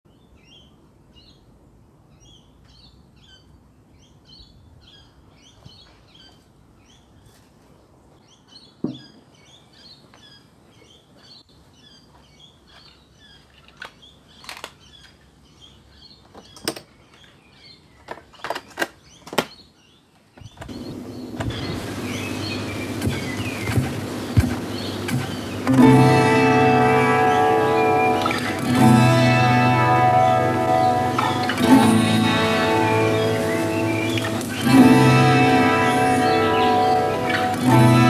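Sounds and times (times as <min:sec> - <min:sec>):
small birds chirping: 0:00.1 - 0:07.4, 0:08.1 - 0:38.0.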